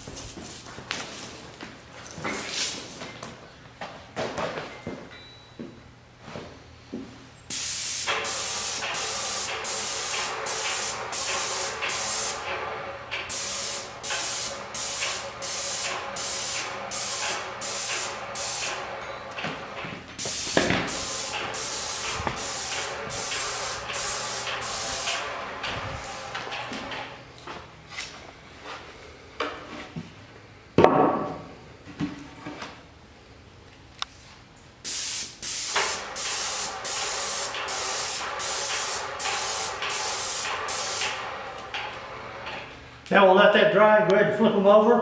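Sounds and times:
spray gun hissing: 7.5s - 18.9s, 20.2s - 26.4s, 34.8s - 41.5s.

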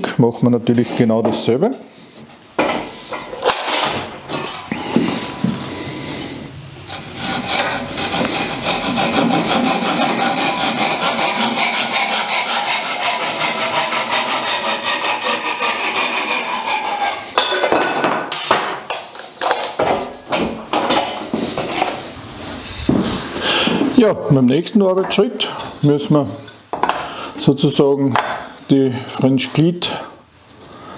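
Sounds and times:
handsaw cutting wood: 6.9s - 17.4s.

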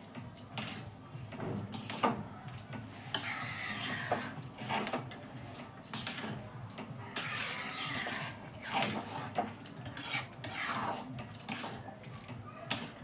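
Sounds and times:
spatula scraping pan: 0.6s - 0.9s, 3.0s - 5.1s, 5.9s - 6.4s, 7.1s - 11.8s.

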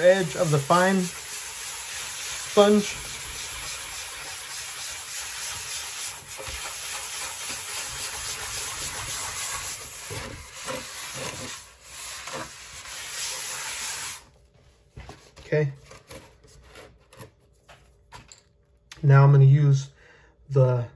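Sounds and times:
sanding sponge rubbing on glass: 0.0s - 14.2s.

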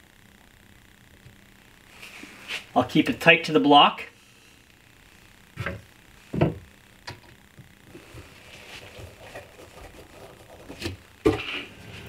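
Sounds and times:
faint scraping and rustling: 1.8s - 2.8s, 7.3s - 12.0s.

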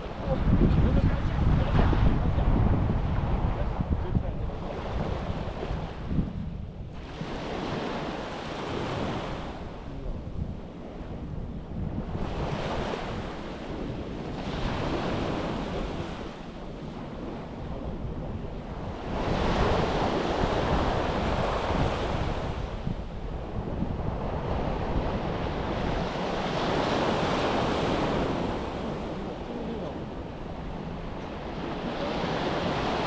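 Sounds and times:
wind rumble on microphone: 0.0s - 33.0s
sea waves washing onto beach: 6.9s - 33.0s.

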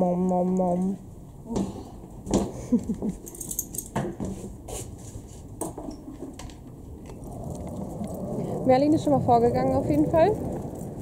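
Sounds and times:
metallic clinks: 3.2s - 4.0s.

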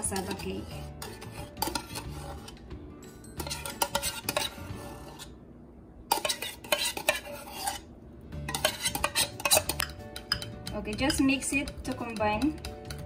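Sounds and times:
metal spoon scraping a can: 0.0s - 2.7s, 3.4s - 5.3s, 6.1s - 7.9s, 8.5s - 13.0s
spoon clinking against tin: 0.0s - 4.6s, 8.5s - 13.0s.

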